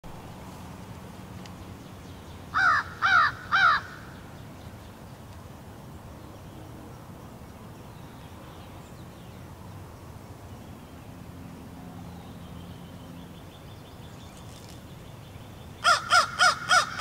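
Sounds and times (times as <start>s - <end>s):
crow cawing: 2.5s - 4.2s, 15.8s - 17.0s.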